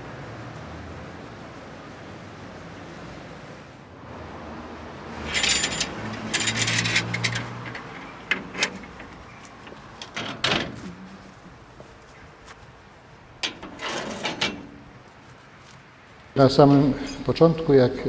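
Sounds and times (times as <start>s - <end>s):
metal frame and hinges scraping: 5.1s - 15.7s, 16.4s - 17.6s
sharp clicks and knocks: 5.2s - 12.6s.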